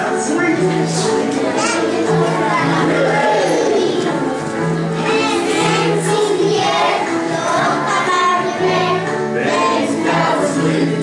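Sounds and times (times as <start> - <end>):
backing music with bass: 0.0 - 11.0
children singing together: 0.9 - 11.0.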